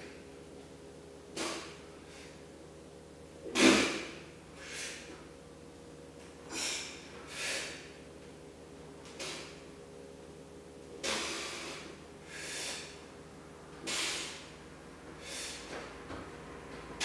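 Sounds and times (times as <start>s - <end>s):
forceful hissing breaths: 6.5s - 8.0s, 11.0s - 13.1s, 13.8s - 14.6s, 15.2s - 15.9s.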